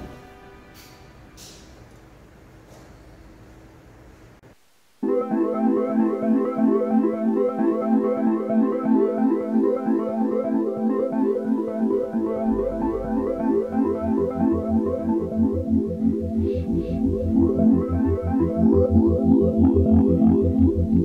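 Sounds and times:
synthesizer background music: 5.0s - 21.0s
deep bass: 12.3s - 21.0s.

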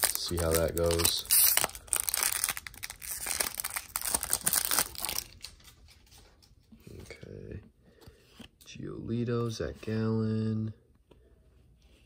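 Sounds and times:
foil wrapper crinkling and tearing: 0.0s - 5.7s.

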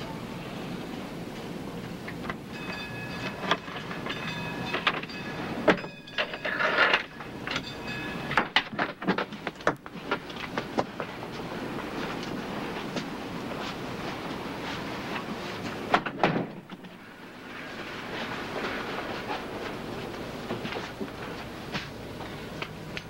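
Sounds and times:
door chain metallic clink: 2.5s - 8.8s.

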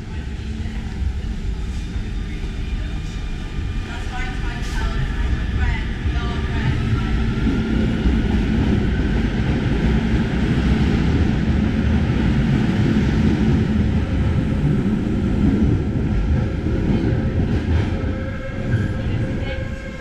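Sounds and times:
metro train rumbling: 0.0s - 20.0s.

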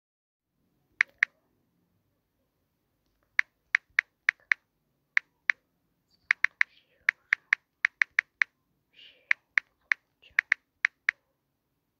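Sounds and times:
on-screen keyboard key clicks: 1.0s - 1.3s, 3.4s - 4.6s, 6.3s - 8.5s, 9.3s - 11.2s.

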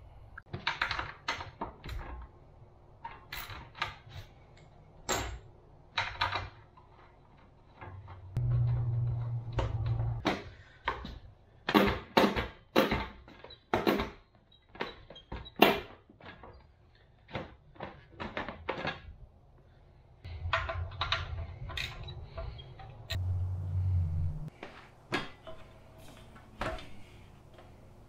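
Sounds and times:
low hum: 8.0s - 10.2s, 20.2s - 24.6s.

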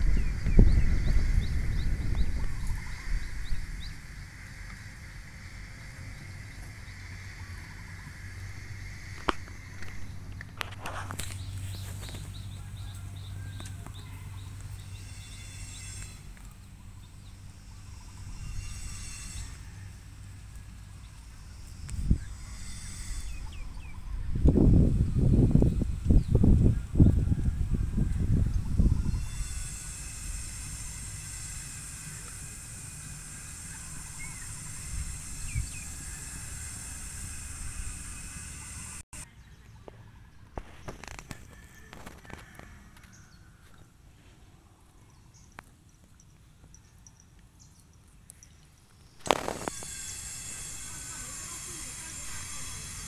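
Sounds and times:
steady low rumble: 0.0s - 15.0s
steady high hiss: 27.8s - 39.2s, 49.0s - 53.0s.

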